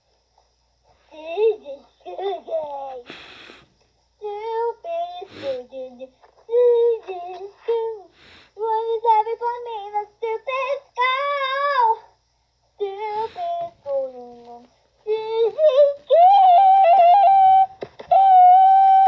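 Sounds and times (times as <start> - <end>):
girl singing wordlessly: 1.1 - 3.1, 4.2 - 12.2, 12.8 - 19.0
girl breathing: 3.0 - 3.8, 5.0 - 5.8, 8.0 - 8.6, 12.9 - 13.9.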